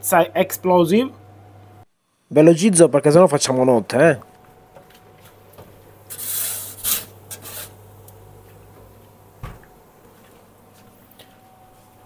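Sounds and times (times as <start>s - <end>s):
steady low hum: 0.0s - 12.0s
metal peel scraping baking stone: 6.1s - 7.8s
oven door shutting thump: 9.4s - 9.8s.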